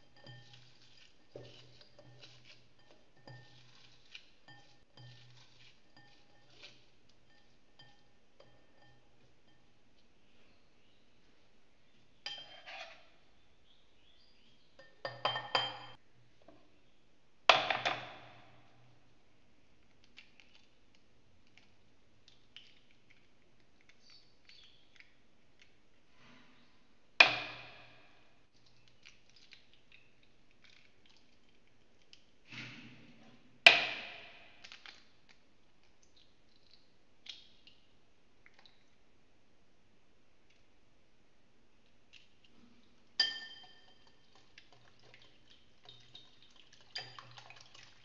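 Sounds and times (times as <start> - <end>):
eggs knocked on glass bowl: 14.8 - 16.0
eggshell clicks and drips: 19.7 - 25.9, 28.5 - 32.4, 34.6 - 39.1, 41.8 - 48.0.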